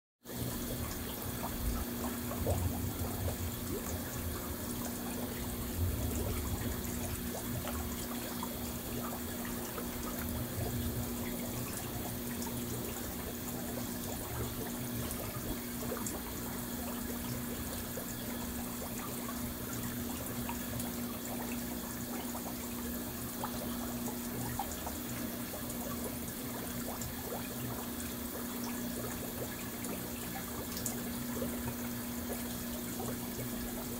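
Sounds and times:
water churning and bubbling: 0.3s - 33.9s
low hum: 0.4s - 14.4s.

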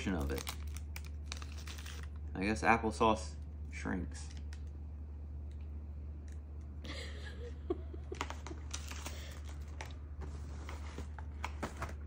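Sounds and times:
wrapper rustling and crinkling: 0.0s - 2.3s
steady low hum: 0.0s - 12.0s.

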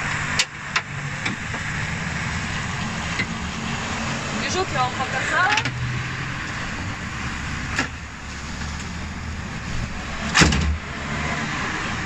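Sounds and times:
car bonnet slamming shut: 10.3s - 10.8s.

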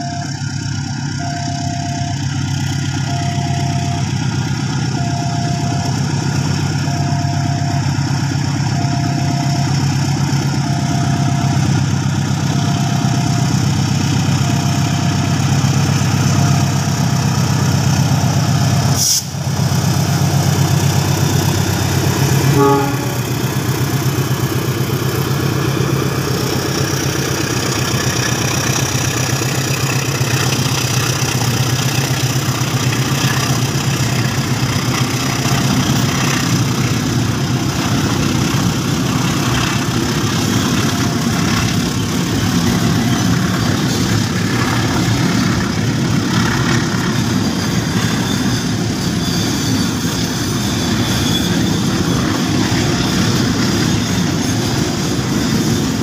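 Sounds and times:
level crossing warning tone: 0.0s - 55.3s
diesel locomotive engine drone: 0.0s - 56.0s
freight wagons rattling on rails: 23.4s - 56.0s.

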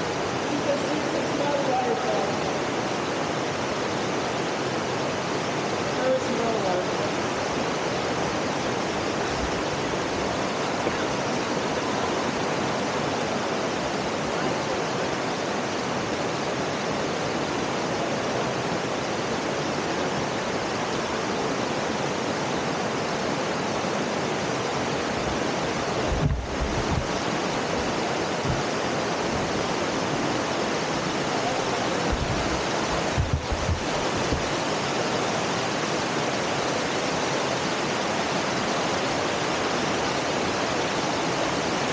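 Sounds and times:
river water rushing: 0.0s - 41.9s
low thumps: 26.0s - 27.2s, 27.8s - 29.4s, 32.0s - 34.5s.

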